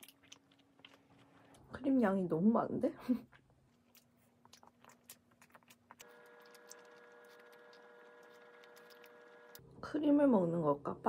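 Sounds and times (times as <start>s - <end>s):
soft chewing clicks: 0.0s - 1.7s, 3.2s - 9.6s
faint electrical hum: 0.0s - 11.0s.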